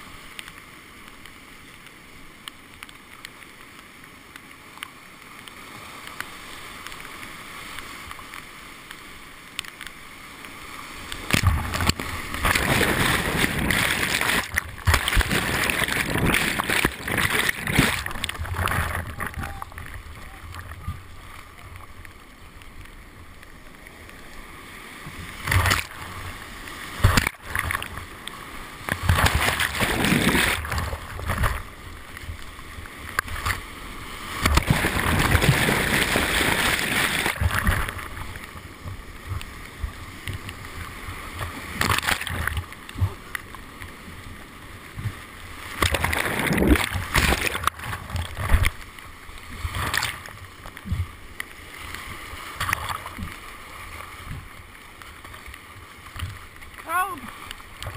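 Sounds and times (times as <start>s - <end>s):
whitewater rushing: 5.8s - 42.6s, 51.7s - 57.9s
waves splashing over boat: 10.4s - 57.9s.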